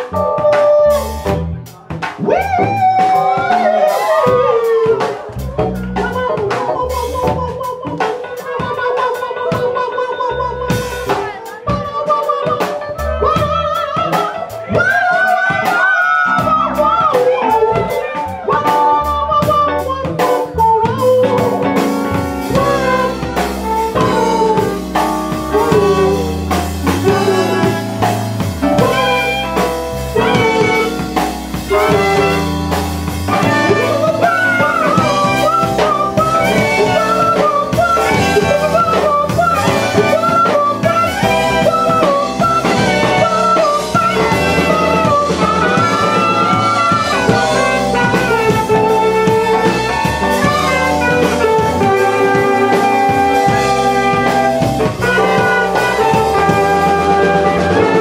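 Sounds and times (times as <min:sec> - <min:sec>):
drum kit beat: 0:00.0 - 0:58.0
keyboard lead melody: 0:00.0 - 0:58.0
live band playing: 0:00.0 - 0:58.0.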